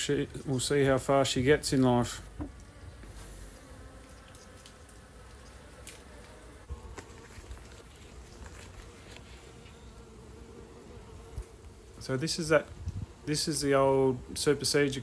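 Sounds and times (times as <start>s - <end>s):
honey bees buzzing: 0.0s - 15.0s.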